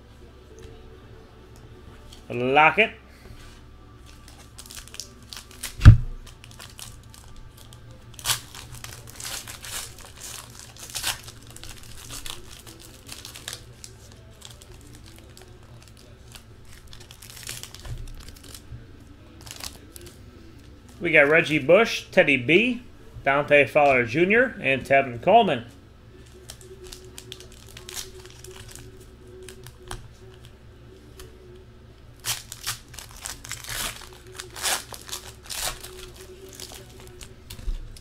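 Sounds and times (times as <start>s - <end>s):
foil wrapper tearing and crinkling: 4.0s - 18.6s, 19.3s - 20.1s, 26.3s - 30.5s, 32.2s - 38.0s
sharp thump: 5.8s - 6.2s.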